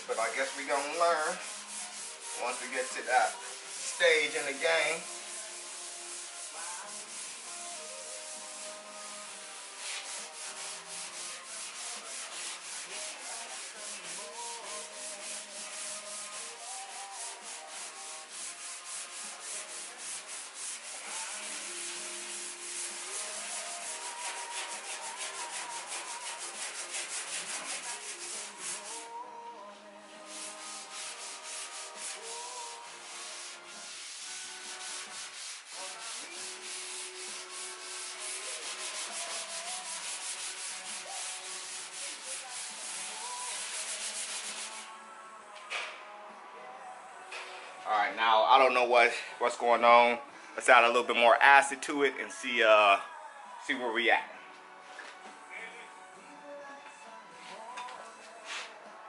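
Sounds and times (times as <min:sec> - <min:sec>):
scouring pad scrubbing metal: 0:00.1 - 0:29.0, 0:30.3 - 0:44.8.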